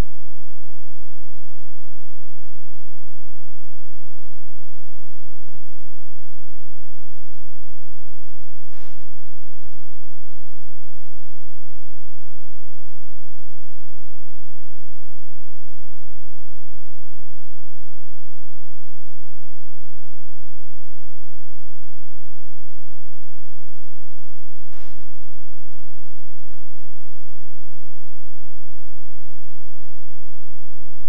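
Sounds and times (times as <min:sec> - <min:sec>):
brief click: 0:08.7 - 0:09.1, 0:24.7 - 0:25.0.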